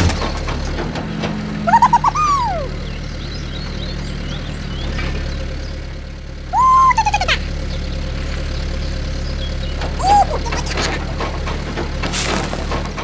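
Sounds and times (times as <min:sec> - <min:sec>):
low engine idling drone: 0:00.0 - 0:13.0
high squeaky call: 0:01.7 - 0:02.9, 0:06.6 - 0:07.4, 0:09.9 - 0:11.7.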